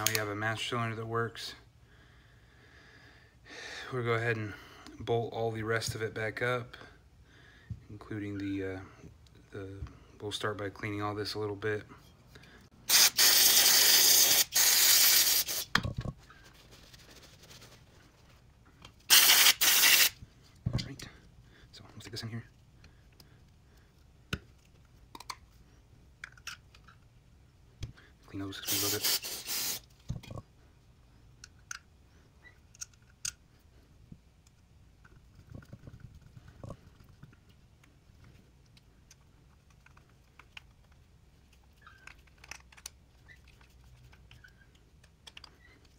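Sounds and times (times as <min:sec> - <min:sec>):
spray can hissing: 0:12.9 - 0:15.7, 0:19.1 - 0:20.2, 0:28.6 - 0:29.9.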